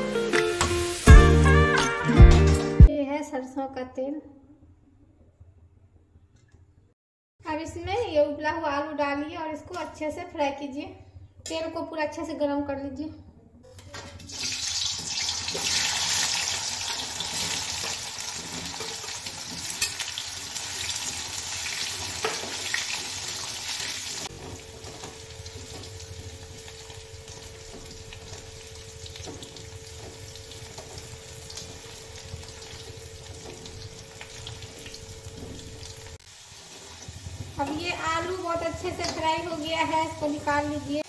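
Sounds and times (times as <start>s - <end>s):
potatoes sizzling in hot oil: 14.3s - 41.0s.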